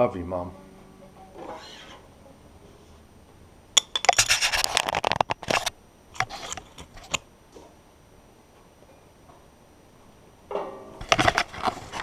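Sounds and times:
handling clicks and scrapes: 3.8 - 7.2, 11.0 - 12.0.

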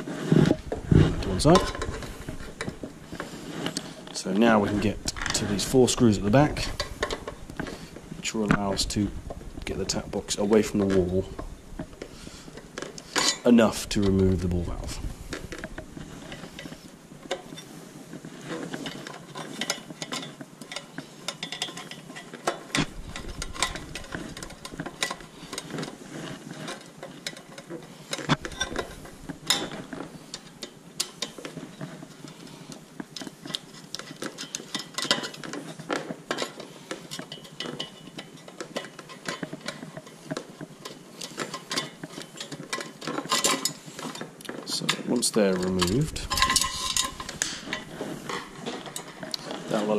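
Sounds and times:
screwdriver clicking and scraping metal: 0.4 - 7.8, 18.4 - 49.9.

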